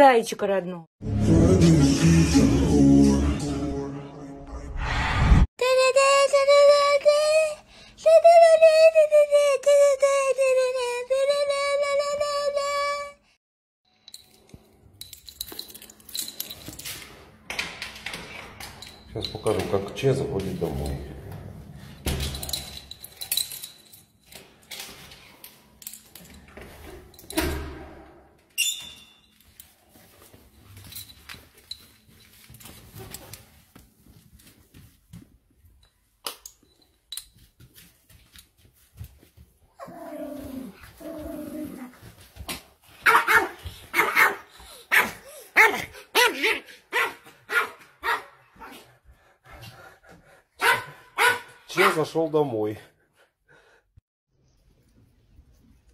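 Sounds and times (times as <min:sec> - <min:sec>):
dog barking: 0:43.0 - 0:48.8, 0:50.6 - 0:52.1.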